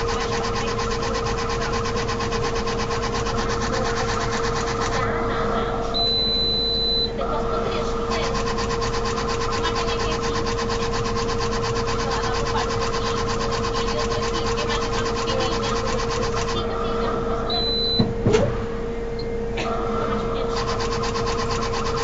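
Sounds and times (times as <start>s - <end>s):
fast even ticking: 0.0s - 5.0s, 8.1s - 16.7s
machine clicks: 0.0s - 5.0s, 8.1s - 16.6s, 20.6s - 22.0s
machine humming: 0.0s - 22.0s.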